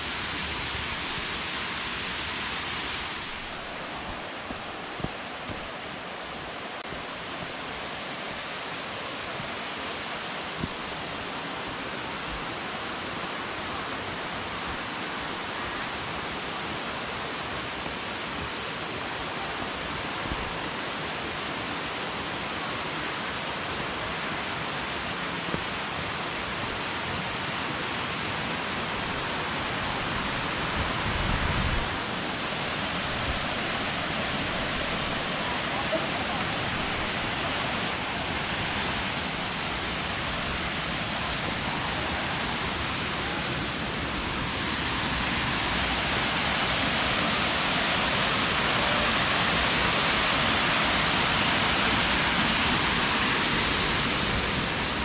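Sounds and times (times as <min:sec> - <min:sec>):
waterfall rushing: 0:27.6 - 0:55.0.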